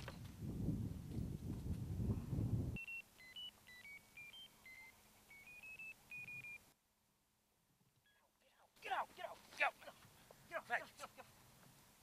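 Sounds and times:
short electronic beeps: 2.8s - 6.6s.

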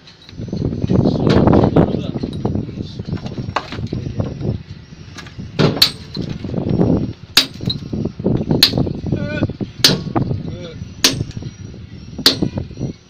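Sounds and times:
hammer striking steel chisel: 12.2s - 12.5s.

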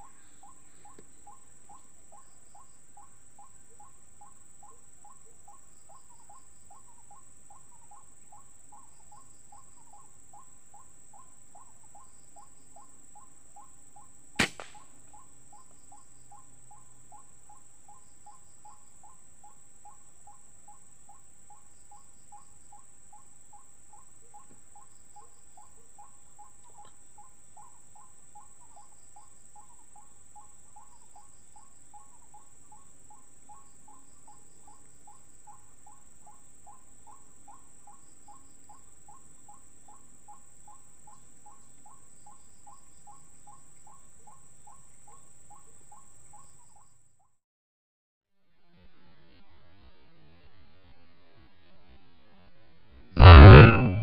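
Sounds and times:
air rifle shot: 14.4s - 14.8s, 53.2s - 54.0s.

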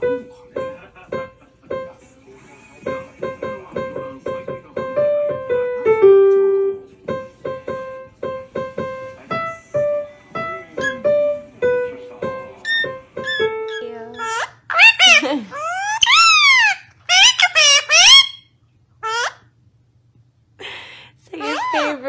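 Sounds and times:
piano melody: 0.0s - 2.2s, 2.8s - 14.4s.

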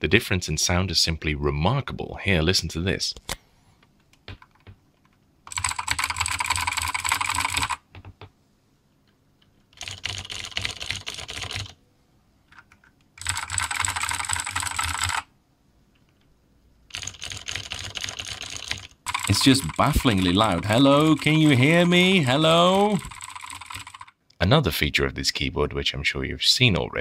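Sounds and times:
fast typing on mechanical keyboard: 4.3s - 8.2s, 9.7s - 11.8s, 12.5s - 15.3s, 16.9s - 24.2s.

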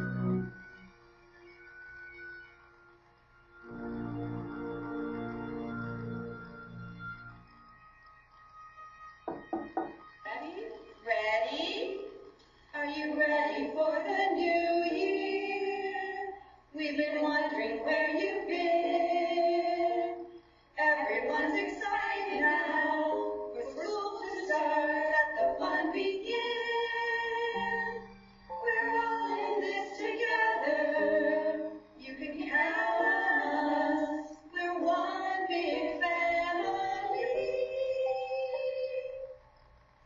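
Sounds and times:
backing music: 0.0s - 11.4s, 17.1s - 38.8s
women singing: 12.8s - 39.4s.

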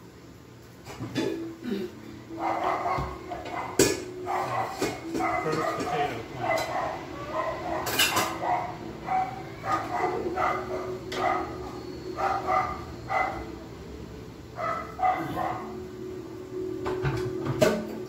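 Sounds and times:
dog barking: 2.3s - 13.5s, 14.6s - 15.8s.

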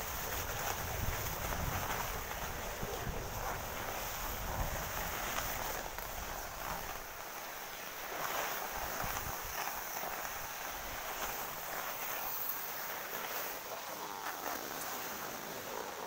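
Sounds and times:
wind rumble on microphone: 0.0s - 12.0s
skis scraping over snow: 0.0s - 16.0s.

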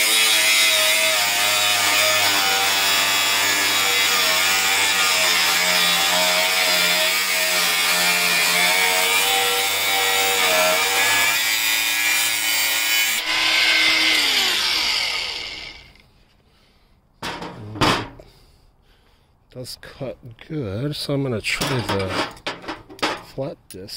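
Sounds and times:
angle grinder cutting metal: 0.0s - 16.0s.

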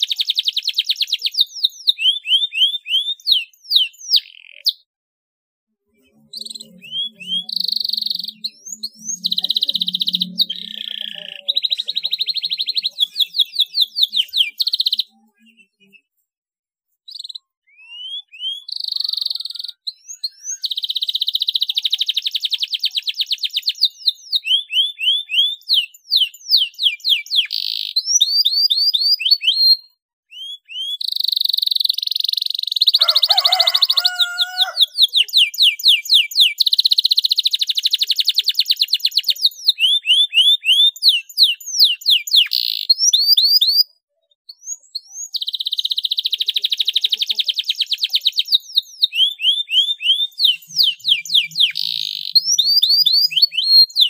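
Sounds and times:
canary singing trills: 0.0s - 4.9s, 5.9s - 16.2s, 17.0s - 54.0s.

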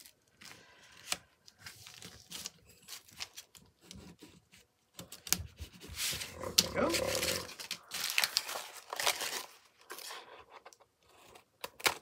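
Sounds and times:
tissue paper rustling: 0.0s - 4.3s, 5.6s - 10.2s.

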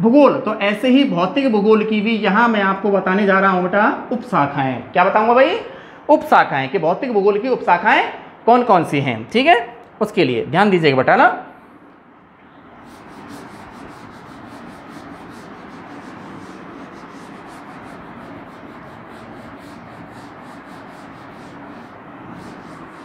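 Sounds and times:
sponge scrubbing chalkboard: 12.8s - 23.0s.

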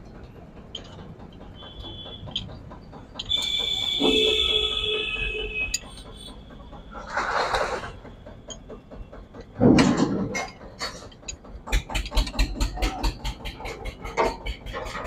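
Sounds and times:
metallic scrape: 3.3s - 8.0s
ratchet wrench clicking: 5.1s - 6.6s
metal clunk: 9.4s - 15.0s.

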